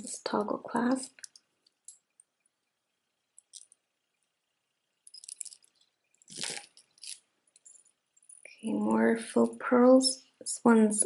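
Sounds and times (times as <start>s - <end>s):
bead necklace clicking: 3.4s - 3.8s, 5.0s - 8.6s.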